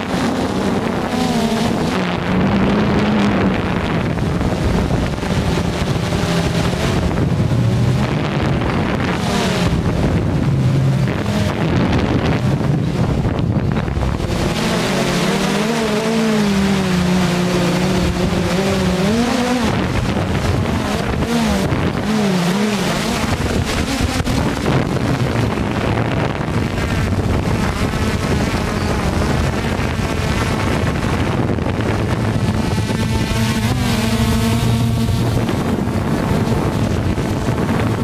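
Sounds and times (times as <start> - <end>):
drone propellers whirring: 0.0 - 38.0
wind on microphone: 0.0 - 38.0.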